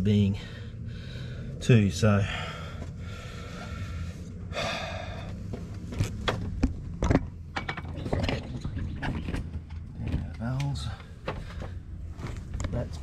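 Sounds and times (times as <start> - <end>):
steady low hum: 0.0 - 13.0
sharp metallic clicks and knocks: 6.0 - 11.8.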